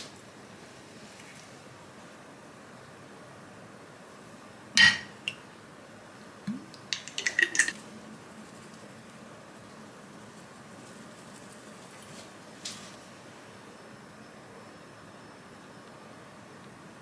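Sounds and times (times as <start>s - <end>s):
glass clinking on ceramic: 4.8s - 5.2s.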